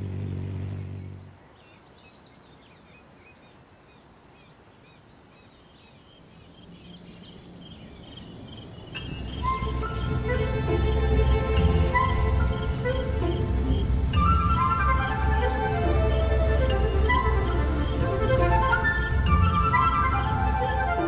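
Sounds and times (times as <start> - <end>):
low hum: 0.0 - 1.4
high insect trill: 0.0 - 2.2, 5.2 - 14.6
bird chirps: 4.8 - 10.1
music: 9.0 - 21.0.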